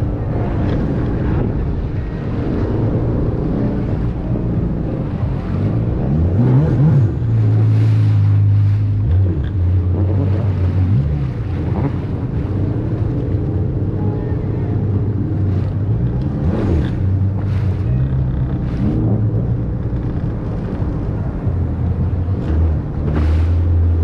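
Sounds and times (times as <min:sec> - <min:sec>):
motorboat engine running: 0:00.0 - 0:24.0
water rushing: 0:00.0 - 0:24.0
wind on microphone: 0:00.0 - 0:24.0.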